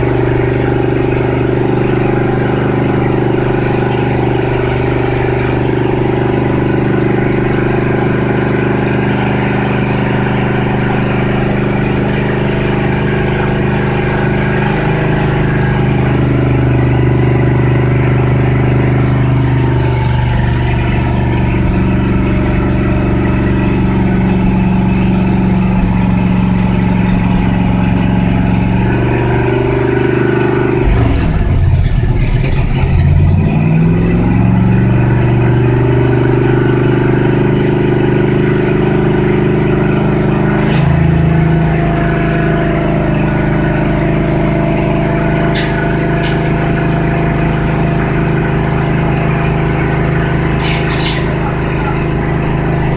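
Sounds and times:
pickup engine fast idle: 0:00.0 - 0:52.9.

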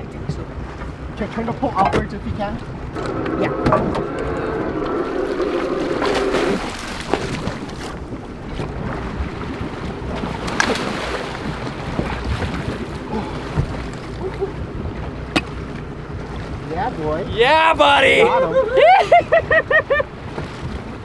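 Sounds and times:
boat engine hum: 0:00.0 - 0:21.0
water splashing against hull: 0:00.0 - 0:21.0
wind on microphone: 0:02.2 - 0:17.4.

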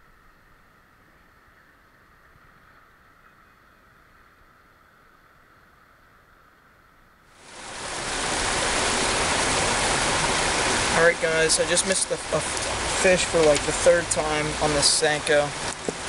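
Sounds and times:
faint steady hiss: 0:00.0 - 0:16.0
creek running over rocks: 0:07.4 - 0:16.0.

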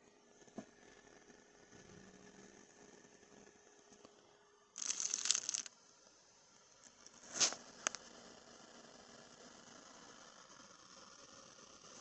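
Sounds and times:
paper rustling: 0:04.8 - 0:05.7.

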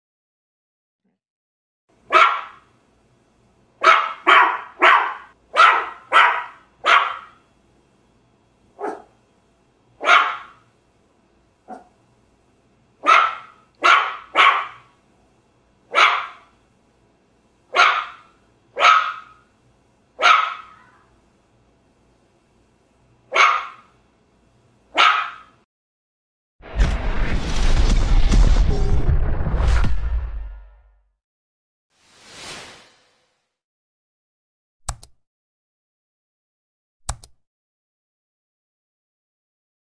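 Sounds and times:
puppy barking: 0:02.1 - 0:02.7, 0:03.8 - 0:07.4, 0:08.8 - 0:09.2, 0:10.0 - 0:10.6, 0:11.7 - 0:12.0, 0:13.0 - 0:14.9, 0:15.9 - 0:16.5, 0:17.7 - 0:19.4, 0:20.2 - 0:21.1, 0:23.3 - 0:23.9, 0:24.9 - 0:25.6.

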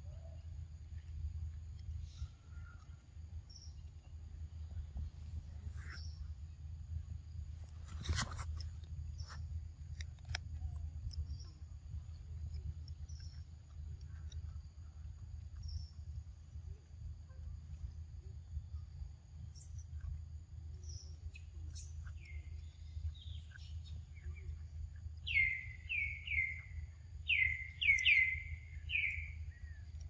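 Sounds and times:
steady low rumble: 0:00.0 - 0:30.0
scattered ticks: 0:07.6 - 0:17.9
sharp crackling clicks: 0:09.8 - 0:11.6
high bird chirps: 0:25.2 - 0:30.0.

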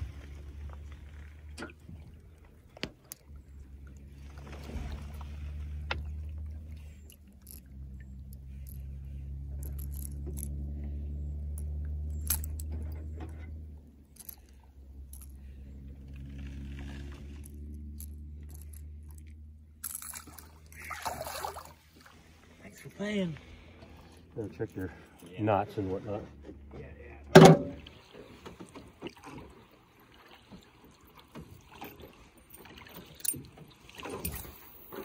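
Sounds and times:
light clicks and jingles: 0:05.2 - 0:16.3, 0:17.0 - 0:20.8, 0:30.5 - 0:35.0.

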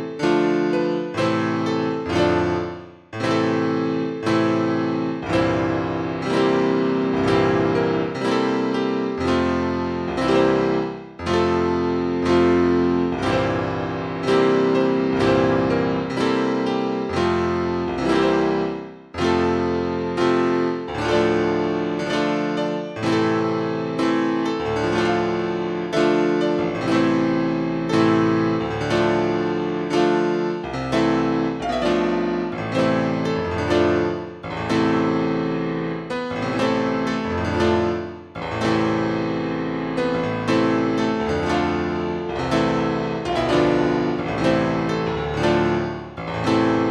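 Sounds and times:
solo piano chords: 0:00.0 - 0:46.9.

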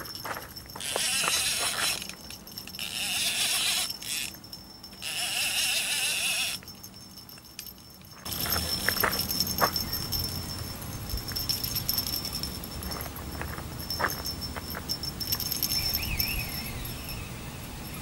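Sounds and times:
fishing reel buzzing: 0:00.8 - 0:06.7.

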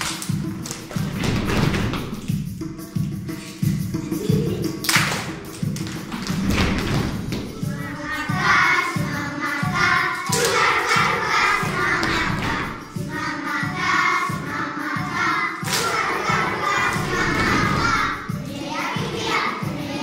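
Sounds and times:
thudding beat: 0:00.1 - 0:19.8
children singing together: 0:02.8 - 0:20.0.

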